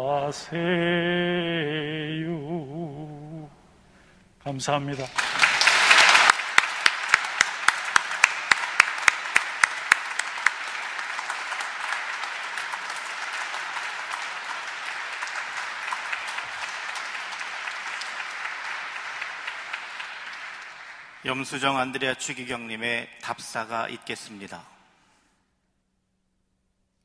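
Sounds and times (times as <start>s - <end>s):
congregation applauding: 4.9s - 22.9s
loud close claps: 5.0s - 22.4s.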